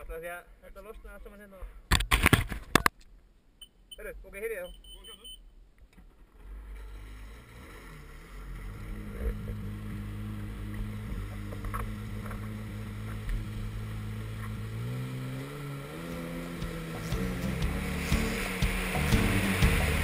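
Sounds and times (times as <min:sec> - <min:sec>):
jet ski engine running: 0:06.5 - 0:20.0.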